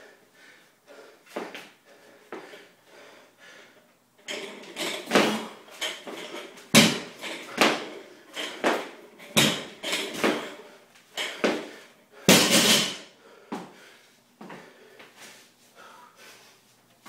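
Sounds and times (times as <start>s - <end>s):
hard fast breathing: 0.0s - 3.8s, 13.0s - 16.7s
barbell thudding on floor: 4.3s - 10.6s, 11.2s - 13.1s.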